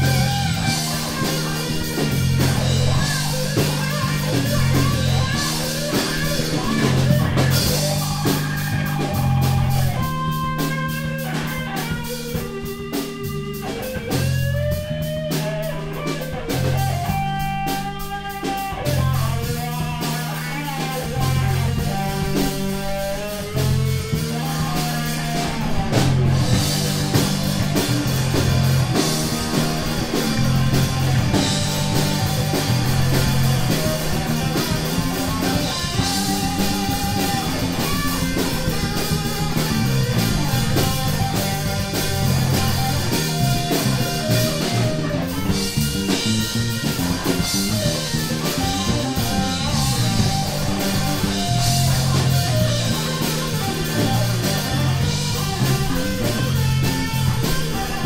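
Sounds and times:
bass guitar line: 0.0s - 58.0s
drum kit: 0.0s - 58.0s
electric guitar: 0.0s - 58.0s.

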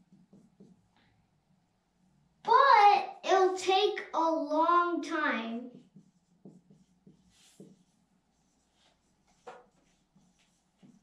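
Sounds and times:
marker writing on whiteboard: 0.0s - 1.2s, 4.9s - 11.0s.

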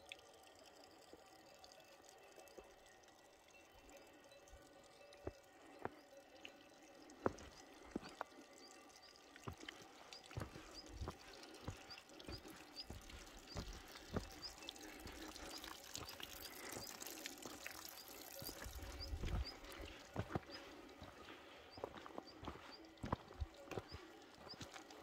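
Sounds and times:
trickling water: 0.0s - 25.0s
footsteps on rocky trail: 7.2s - 8.4s, 9.4s - 17.2s, 17.9s - 25.0s.

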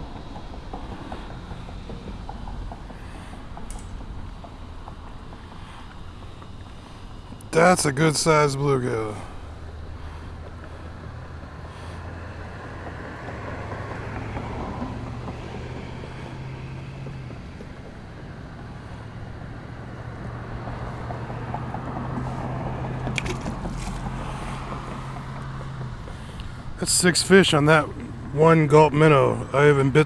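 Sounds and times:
traffic engine hum: 0.0s - 30.0s
fish splashing into water: 23.1s - 24.4s.

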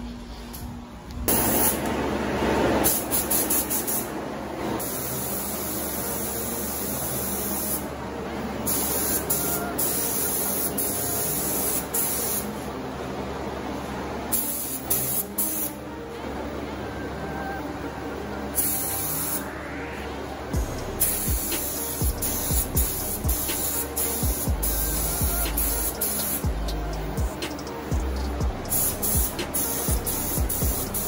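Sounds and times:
spray gun hissing: 2.8s - 4.1s, 4.8s - 7.9s, 8.6s - 12.6s, 14.3s - 15.8s, 18.6s - 19.5s, 20.6s - 31.0s.

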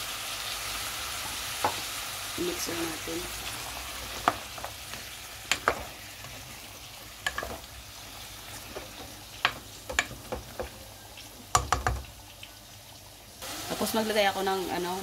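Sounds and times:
food sizzling in a pan: 0.0s - 15.0s
spoon knocking and scraping pan: 1.2s - 1.9s, 3.9s - 7.8s, 8.5s - 10.8s, 11.5s - 12.1s.

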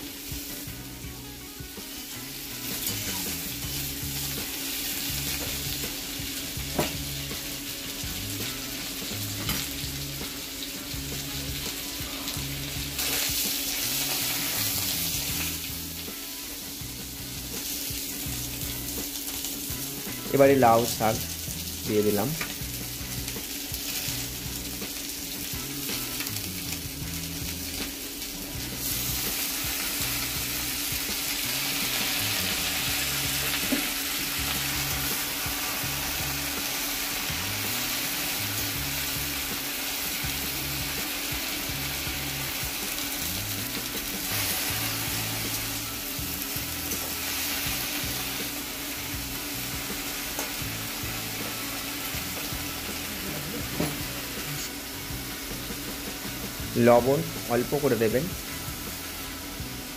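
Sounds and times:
vegetables sizzling in hot oil: 0.0s - 59.9s.

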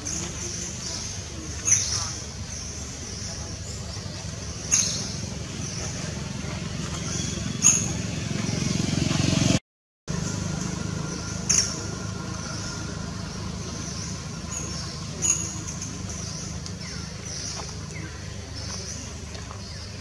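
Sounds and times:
low engine rumble: 0.0s - 20.0s.

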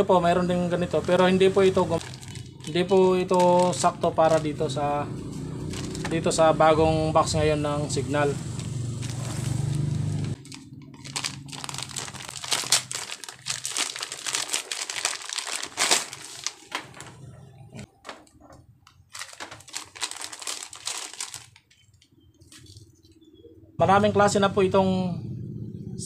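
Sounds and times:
plastic pouch crinkling: 2.0s - 4.6s, 5.7s - 6.1s, 8.5s - 17.3s, 18.0s - 22.9s.

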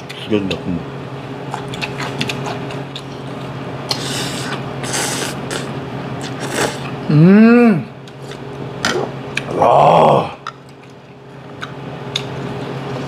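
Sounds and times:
steady low hum: 0.0s - 13.0s
slurping: 3.9s - 6.9s.

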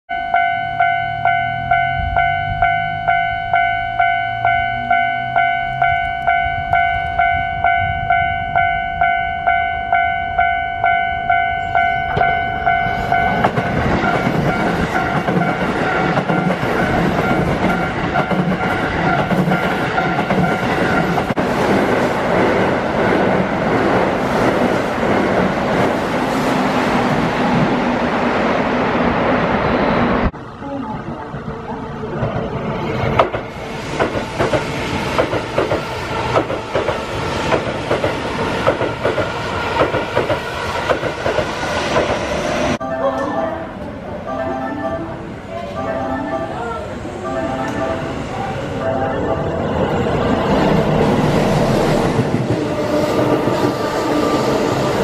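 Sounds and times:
crossing warning bell clanging: 0.1s - 21.5s, 42.7s - 55.0s
train wheels clattering over rail joints: 13.4s - 23.4s, 33.1s - 42.4s.

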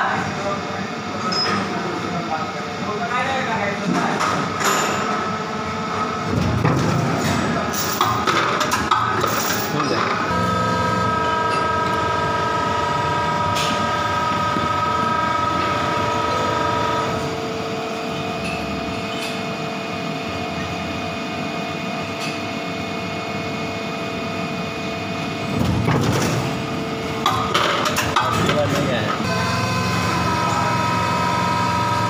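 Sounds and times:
moulding machine whining: 10.2s - 17.2s, 29.2s - 32.0s.

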